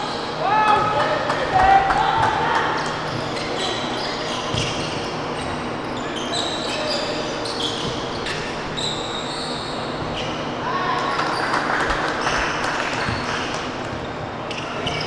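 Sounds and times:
shoes squeaking on hardwood floor: 3.0 - 10.5
basketball bouncing: 4.5 - 5.0.

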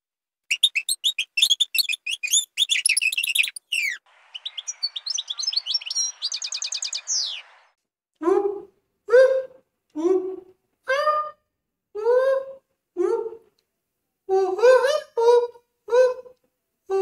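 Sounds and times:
finch twittering chirps: 0.5 - 7.7
background hiss: 4.1 - 7.8.

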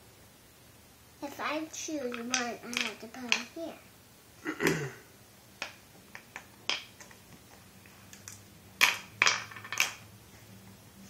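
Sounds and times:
glass stones clicking on wood: 5.6 - 7.2, 8.1 - 10.0.

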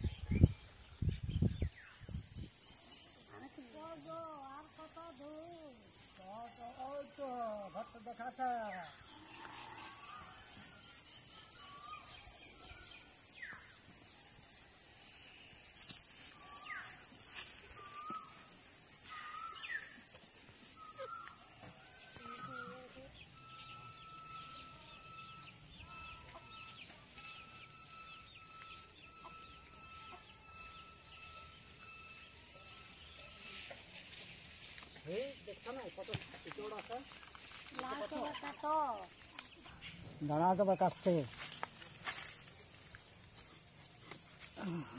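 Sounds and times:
high-pitched insect drone: 1.5 - 44.9
bird calls: 17.6 - 33.7.

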